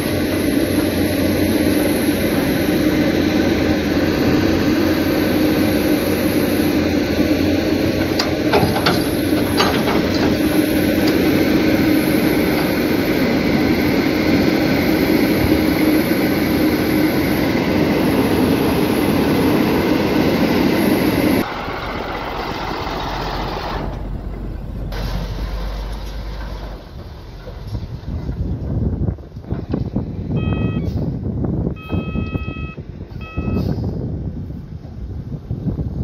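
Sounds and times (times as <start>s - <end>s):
excavator diesel engine droning: 0.0s - 35.3s
dump truck diesel engine: 0.0s - 36.0s.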